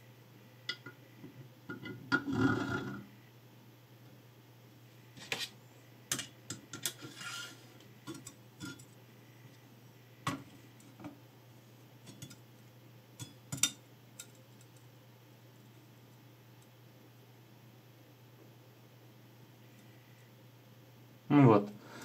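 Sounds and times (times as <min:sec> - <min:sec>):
short scraping rub: 0:07.0 - 0:07.7.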